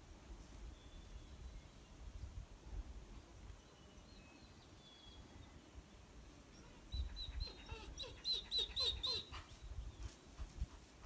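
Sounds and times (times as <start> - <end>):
high-pitched animal chirps and yips: 6.9 - 9.5.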